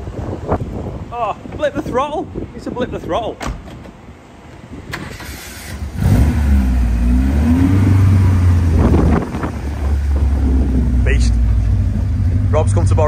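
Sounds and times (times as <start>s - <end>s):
car engine revving: 5.1s - 13.0s.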